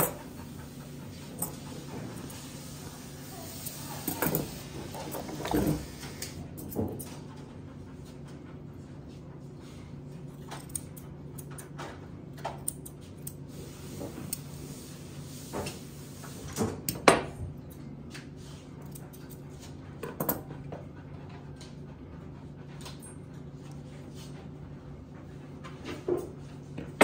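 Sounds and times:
steady low hum: 0.0s - 15.1s.

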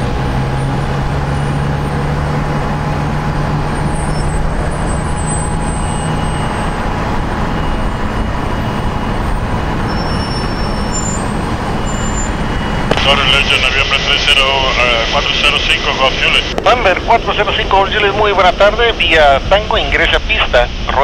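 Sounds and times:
jet engines roaring: 0.0s - 21.0s
low hum: 0.0s - 21.0s
faint high whine: 7.5s - 21.0s.

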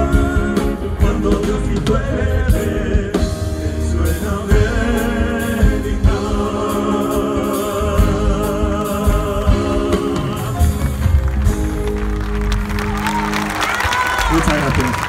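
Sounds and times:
men singing together: 0.0s - 11.0s
backing band playing: 0.0s - 15.0s.

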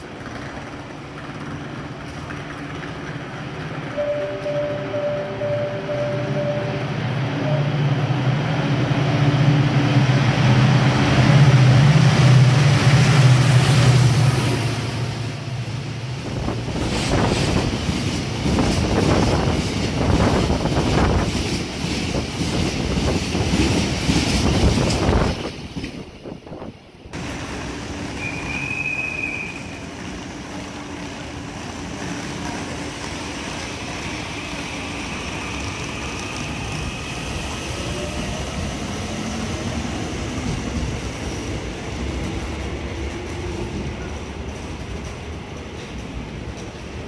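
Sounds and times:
brief high tone: 4.0s - 8.1s.

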